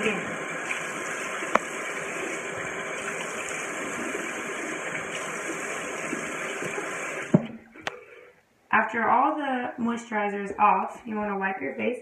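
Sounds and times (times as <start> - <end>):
tap running into sink: 0.6 - 1.8, 2.6 - 7.6.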